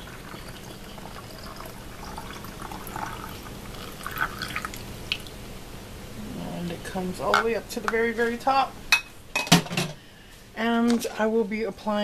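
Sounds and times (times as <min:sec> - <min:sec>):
water trickling through funnel: 0:00.0 - 0:05.3.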